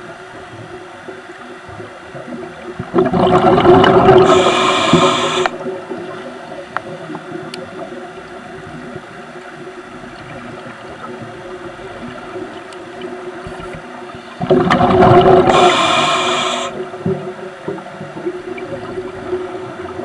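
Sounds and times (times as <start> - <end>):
low underwater hum: 0.0 - 20.0
rush of bubbling: 2.2 - 7.1, 14.4 - 17.1.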